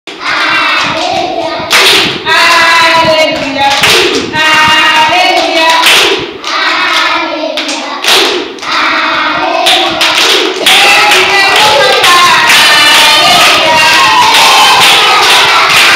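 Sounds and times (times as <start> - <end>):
children singing in unison: 0.1 - 15.9
hand claps: 0.8 - 2.6, 3.3 - 4.3, 5.2 - 8.8, 9.6 - 15.9.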